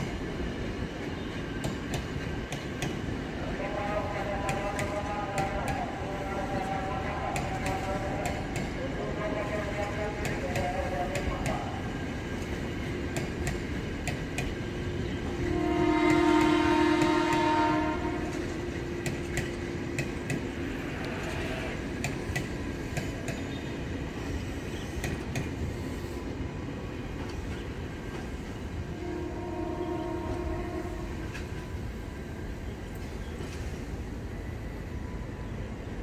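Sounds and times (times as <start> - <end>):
train rumble: 0.0 - 36.0
train horn: 15.1 - 18.8, 28.8 - 31.4.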